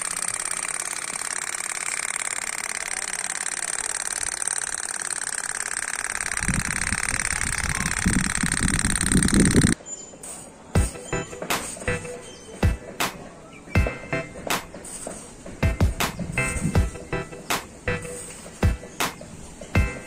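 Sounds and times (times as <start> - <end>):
small motor whining: 0.0 - 9.8.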